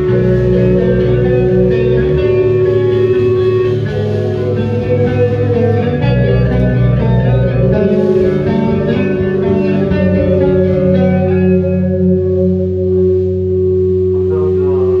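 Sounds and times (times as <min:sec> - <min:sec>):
guitar note bending: 0:00.0 - 0:15.0
rock band playing loudly: 0:00.0 - 0:15.0.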